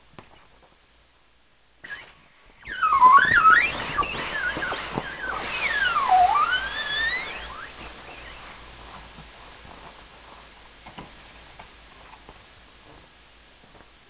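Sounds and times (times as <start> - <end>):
air whistling out of valve: 1.8 - 8.8.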